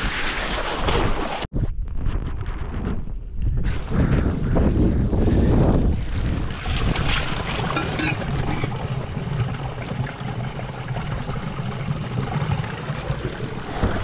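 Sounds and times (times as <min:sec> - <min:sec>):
water running into metal bottle: 0:06.8 - 0:14.0.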